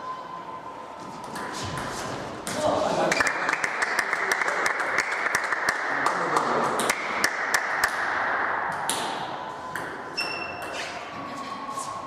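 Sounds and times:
table tennis ball bouncing: 8.7 - 10.8.

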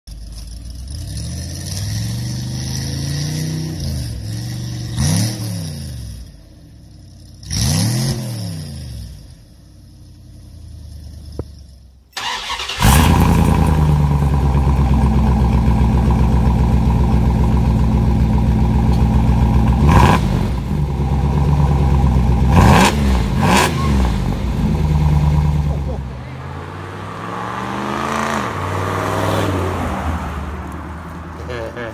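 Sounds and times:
truck engine revving: 12.2 - 31.9.

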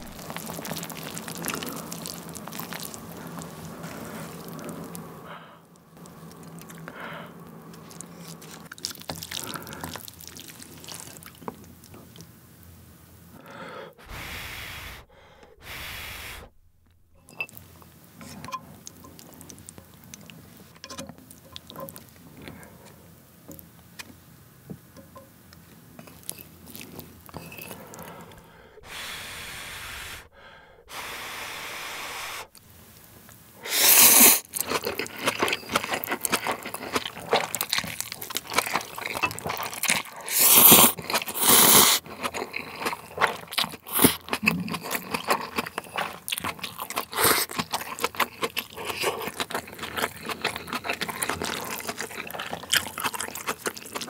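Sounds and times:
slurping noodles: 0.0 - 5.0, 14.0 - 16.6, 27.7 - 32.6, 33.6 - 54.0
chewing noodles: 0.0 - 5.1, 6.0 - 12.3, 26.0 - 29.0, 33.7 - 54.0.

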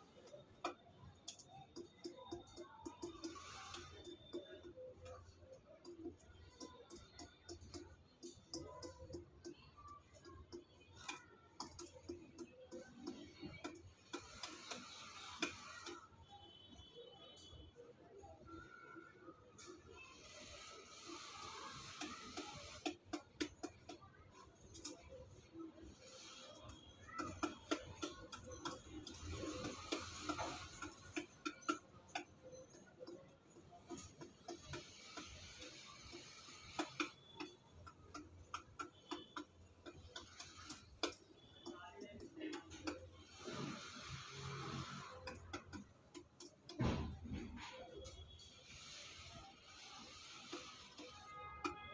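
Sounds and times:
pigeon pecking in a metal bowl: 26.5 - 43.1.

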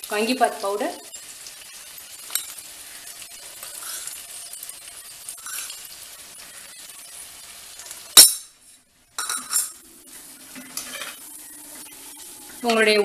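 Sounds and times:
vegetables sizzling in pot: 0.0 - 13.0
metal spoon scraping in pot: 10.6 - 11.3.

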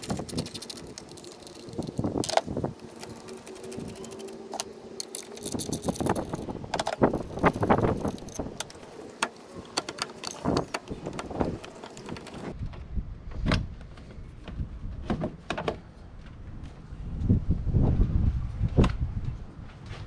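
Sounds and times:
intake hose clicks and rubbing: 0.0 - 12.6.

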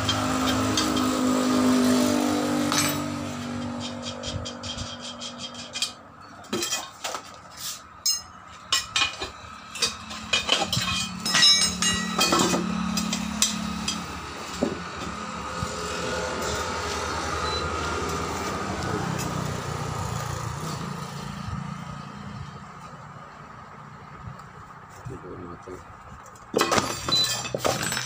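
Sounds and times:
metal wheel rim clinking on concrete: 0.0 - 15.3, 26.4 - 28.0.

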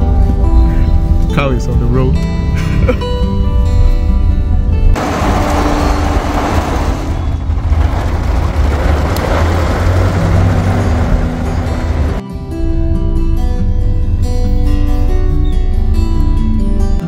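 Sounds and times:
background music: 0.0 - 7.3, 9.7 - 17.0
wet-road traffic rumble: 4.9 - 12.2
rain hissing: 5.0 - 12.2.

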